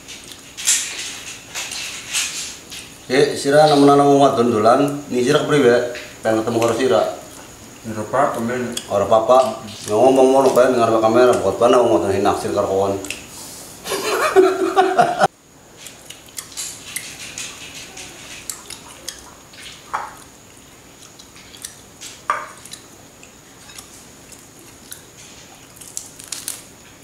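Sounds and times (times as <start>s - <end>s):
man speaking: 7.8s - 13.1s
chewing: 15.8s - 26.6s.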